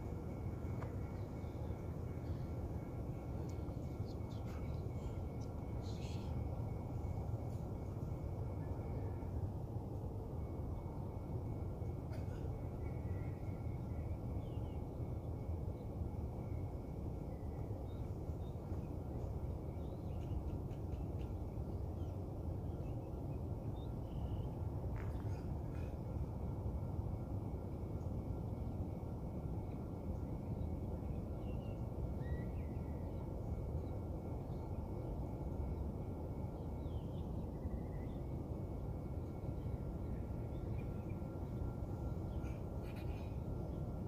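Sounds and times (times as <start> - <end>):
low outdoor rumble: 0.0 - 44.0
faint bird chirps: 1.0 - 9.4, 10.4 - 26.4, 29.6 - 44.0.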